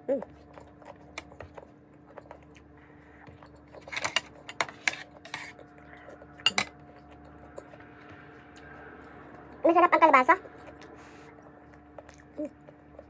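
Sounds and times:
person chewing: 0.2 - 9.6, 10.4 - 13.0
clinks from a plate: 6.4 - 6.8.

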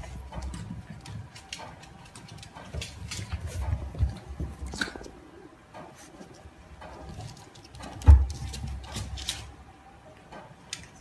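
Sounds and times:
puppy paws scrabbling and tapping: 0.0 - 9.6.

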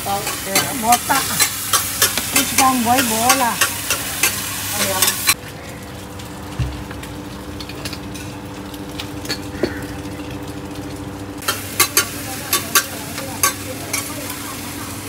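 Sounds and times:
electric fan hum: 0.0 - 15.0
food sizzling in a frying pan: 0.0 - 15.0
spatula clinking: 0.2 - 5.4.

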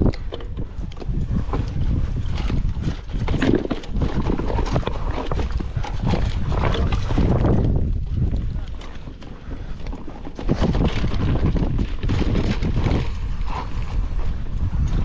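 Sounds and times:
mountain bike rattling and knocking: 0.0 - 15.0
tyre rumble on stony trail: 0.0 - 15.0.

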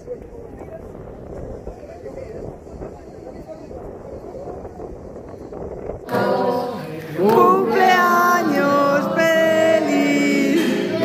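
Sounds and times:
vehicle and wind noise: 0.0 - 6.1
choir singing: 6.1 - 11.0.

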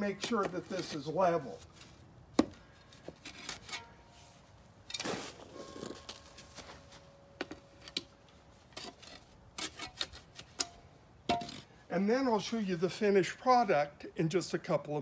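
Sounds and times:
spade scraping soil: 3.2 - 6.9, 8.5 - 10.6.

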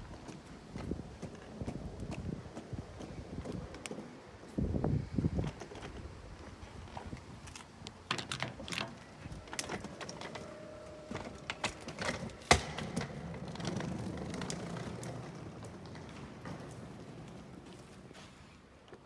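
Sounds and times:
wheeled suitcase clicking and knocking: 8.1 - 16.8.

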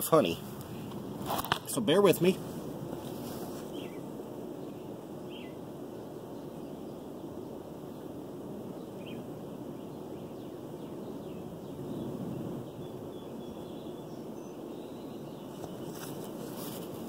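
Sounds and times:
honey bees humming: 0.0 - 17.0
faint bird chirps: 3.6 - 5.6, 6.3 - 16.8.

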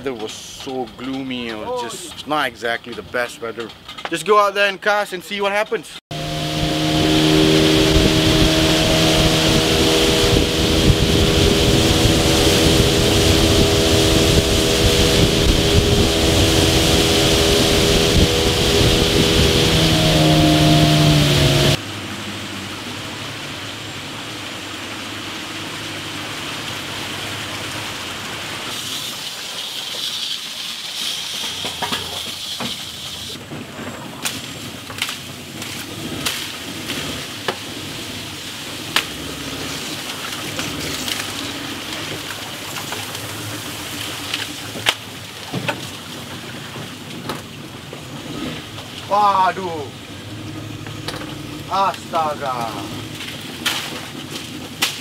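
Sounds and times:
scattered clicks and knocks: 0.1 - 2.2
boat engine running: 6.1 - 24.5, 38.7 - 55.0
water and wind hiss: 6.1 - 55.0.

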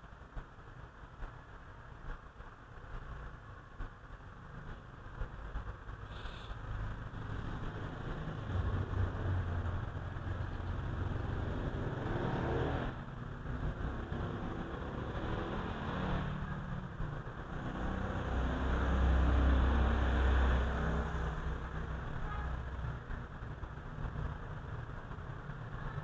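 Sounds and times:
traffic engine rumble: 0.0 - 26.0.

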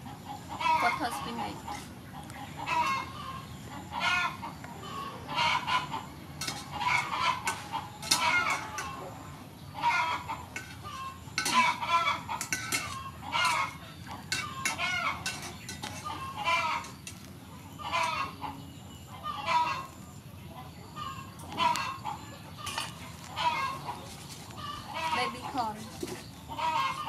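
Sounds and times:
chickens clucking: 0.0 - 27.0
metal spoon clinking on pot: 6.4 - 6.7, 7.5 - 9.0, 10.5 - 10.8, 11.4 - 11.8, 12.4 - 16.0.

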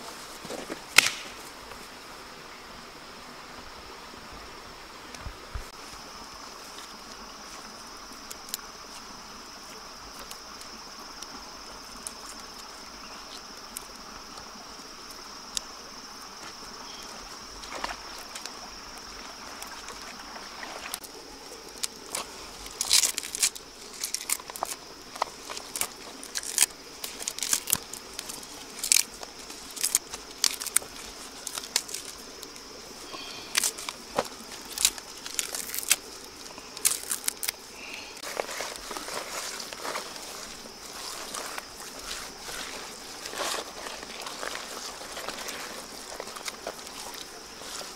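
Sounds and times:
leaves crackling in hands: 0.0 - 1.9, 5.6 - 47.9
high insect drone: 0.0 - 47.9.

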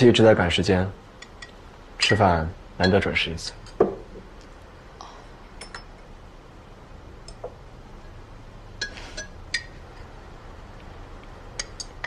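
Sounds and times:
porcelain bowls and spoons clinking: 5.6 - 6.0, 8.8 - 10.1, 11.6 - 12.0.

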